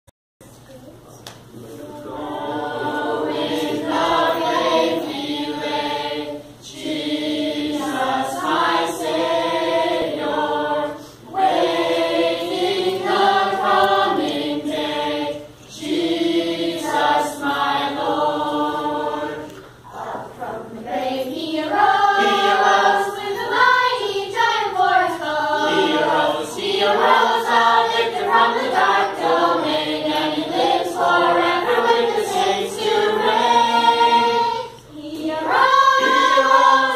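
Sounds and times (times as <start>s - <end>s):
youth choir singing: 1.5s - 36.9s.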